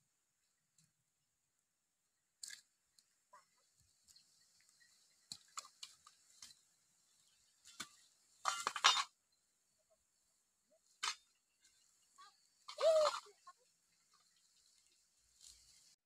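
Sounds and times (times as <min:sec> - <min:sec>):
rustling in dry grass: 0:11.6 - 0:16.0.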